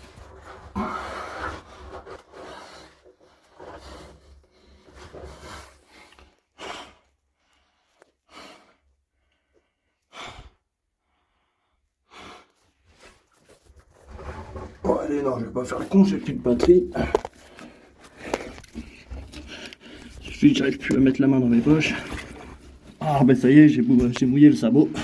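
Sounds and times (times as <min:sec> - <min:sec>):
rustling in a tight passage: 0:00.0 - 0:08.1, 0:12.6 - 0:25.0
person breathing hard: 0:00.5 - 0:12.8.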